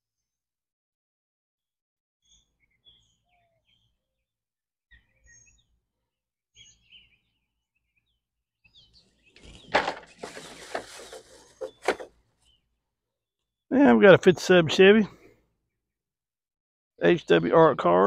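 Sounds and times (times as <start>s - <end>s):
faint bird chirps: 2.2s - 4.3s, 4.9s - 12.8s
plastic bag crinkling and rustling: 9.4s - 12.1s.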